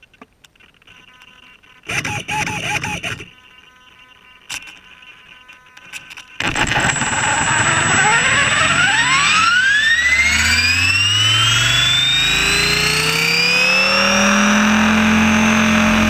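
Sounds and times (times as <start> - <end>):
rc helicopter motor whine: 1.8 - 16.0
steady high tone: 6.4 - 16.0.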